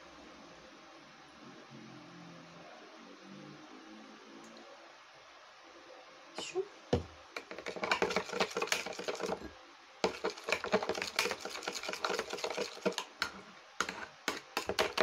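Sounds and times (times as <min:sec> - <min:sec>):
spoon stirring paste in bowl: 0:07.0 - 0:15.0.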